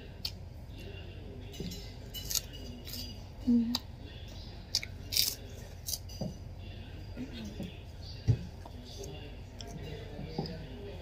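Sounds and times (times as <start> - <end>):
fried chip crunching as chewed: 4.8 - 6.0.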